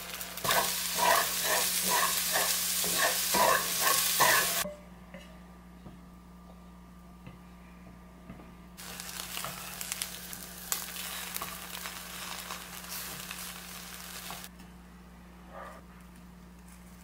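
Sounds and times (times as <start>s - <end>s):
bread sizzling in a pan: 0.0s - 4.6s, 8.8s - 14.5s.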